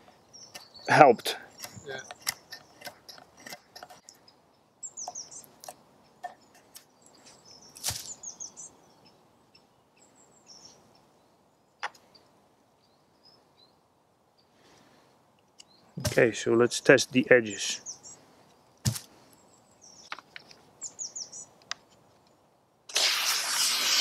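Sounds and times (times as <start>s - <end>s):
small bird chirping: 0.1s - 13.8s, 15.5s - 16.0s, 17.6s - 18.3s, 19.2s - 22.4s
knife scraping wood: 1.4s - 4.0s.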